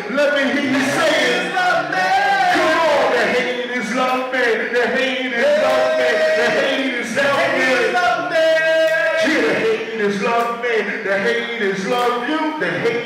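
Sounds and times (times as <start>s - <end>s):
hip-hop backing track: 0.0s - 13.0s
men chanting and singing: 0.0s - 13.0s.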